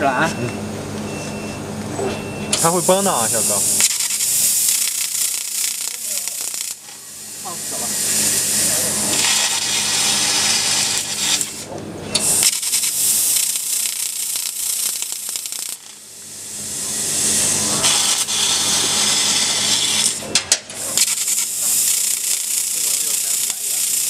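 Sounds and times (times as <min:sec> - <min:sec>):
laser cutter jet hissing: 0:02.5 - 0:24.0
sharp crackles: 0:03.8 - 0:06.9, 0:12.4 - 0:16.0, 0:21.0 - 0:24.0.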